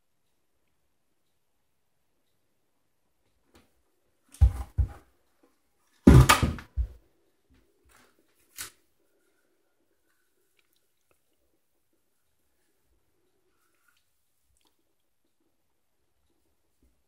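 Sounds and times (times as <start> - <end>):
plastic bucket knocking on floor: 4.4 - 5.0, 6.1 - 7.0.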